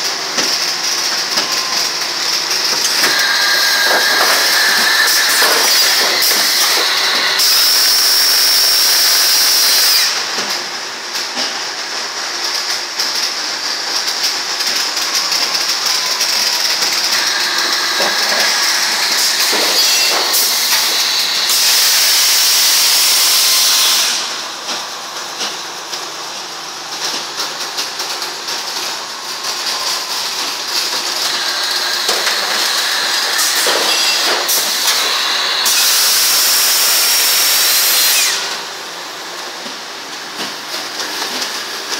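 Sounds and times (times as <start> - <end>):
machine mechanical din: 2.6 - 8.0
loud air hiss blasts: 2.9 - 10.2.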